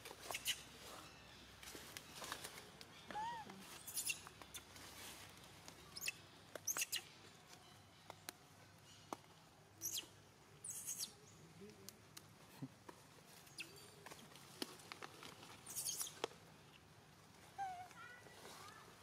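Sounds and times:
small animals chirping and squeaking: 0.2s - 1.2s, 2.1s - 4.9s, 5.9s - 7.2s, 9.8s - 11.2s, 13.4s - 14.3s, 15.6s - 16.3s.

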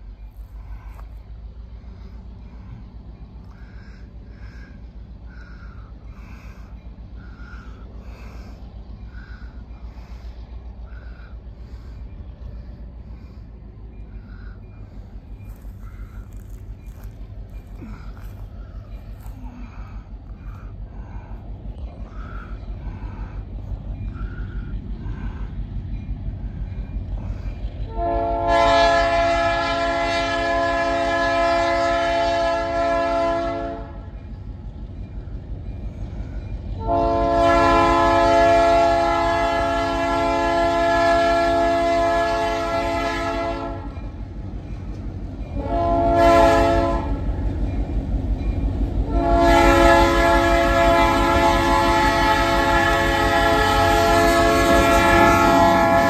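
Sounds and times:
locomotive engine running: 0.0s - 56.0s
locomotive air horn blasts: 27.9s - 34.1s, 36.8s - 44.0s, 45.6s - 47.3s, 49.0s - 56.0s.

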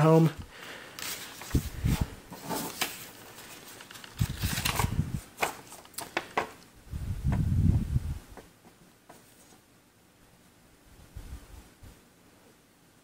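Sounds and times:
paper crinkling and rustling: 0.9s - 6.5s.

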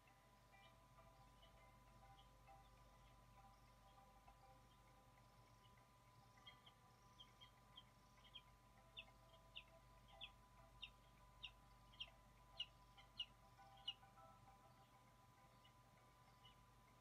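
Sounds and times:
eaglet chirping: 5.5s - 14.2s.

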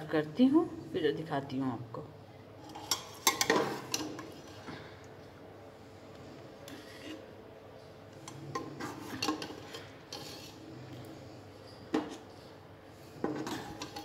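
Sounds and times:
metal ladle scraping a pot: 6.6s - 7.4s, 8.2s - 11.0s, 11.6s - 14.0s.

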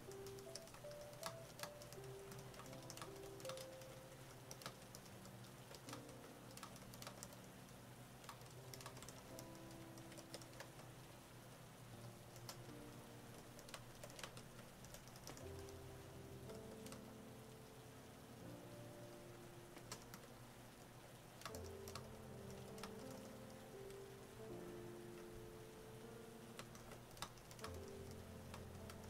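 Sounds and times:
keyboard typing clicks: 0.1s - 7.5s, 8.2s - 10.9s, 13.4s - 15.8s, 16.5s - 17.1s, 19.8s - 20.3s, 21.4s - 23.6s, 26.6s - 29.0s.

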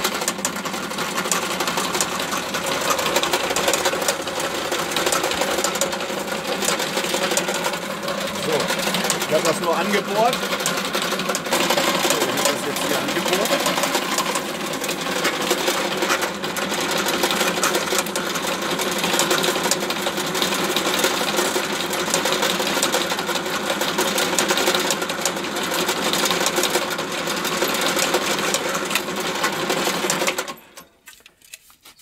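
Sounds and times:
drill press motor hum: 0.0s - 30.8s.

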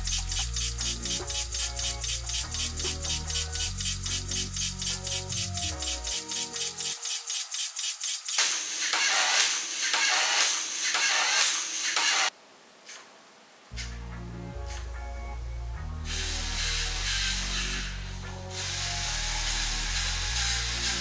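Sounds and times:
background music with steady beat: 0.0s - 12.3s, 13.8s - 21.0s.

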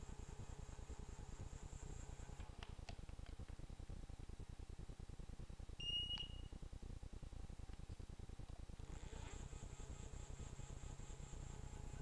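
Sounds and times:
low steady rumble: 0.0s - 12.0s
short electronic beep: 5.8s - 6.5s.

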